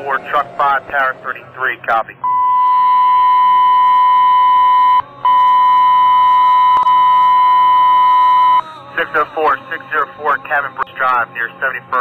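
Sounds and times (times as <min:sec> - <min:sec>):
radio alert tone: 0:02.1 - 0:08.6.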